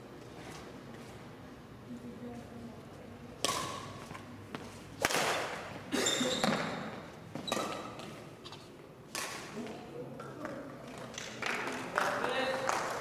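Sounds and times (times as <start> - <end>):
racket striking shuttlecock: 3.4 - 4.2, 5.0 - 5.7, 9.1 - 9.6
shoes squeaking on floor: 5.9 - 8.7.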